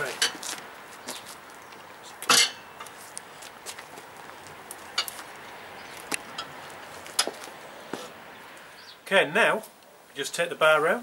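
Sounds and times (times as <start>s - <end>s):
metal bar clinking on wheel rim: 2.3s - 2.9s.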